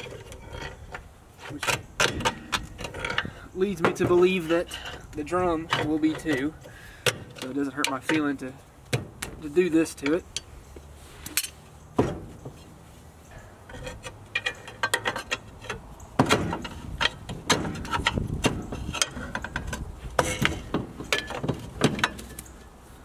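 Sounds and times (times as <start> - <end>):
metal clanks and knocks: 0.0 - 10.5, 11.3 - 12.7, 13.6 - 22.6.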